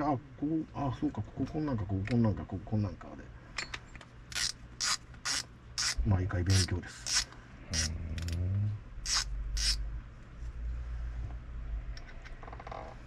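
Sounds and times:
hissy scrapes of fishing reel: 4.4 - 7.9, 9.1 - 9.8.

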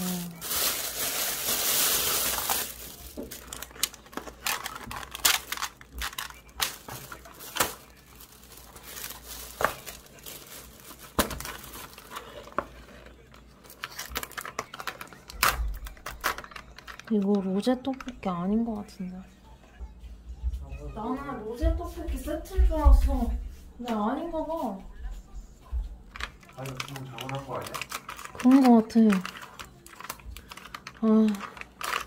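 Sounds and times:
plastic bag rustling: 0.0 - 17.3, 26.1 - 32.0.

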